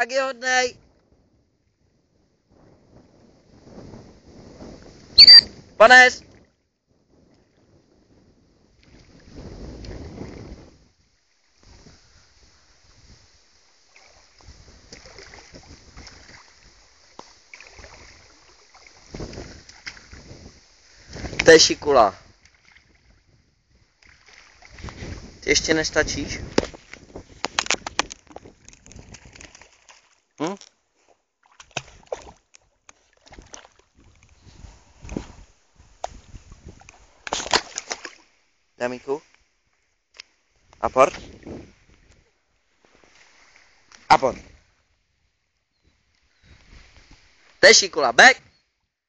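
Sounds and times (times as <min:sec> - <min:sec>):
wind buffeting microphone: 0:00.8 - 0:12.2, 0:14.4 - 0:16.9, 0:17.7 - 0:29.6, 0:33.3 - 0:37.3, 0:40.7 - 0:42.3
small splashes and ticks: 0:08.7 - 0:10.5, 0:12.8 - 0:25.4, 0:26.4 - 0:38.5, 0:39.3 - 0:41.2
water lapping: 0:11.2 - 0:38.5, 0:40.4 - 0:44.7.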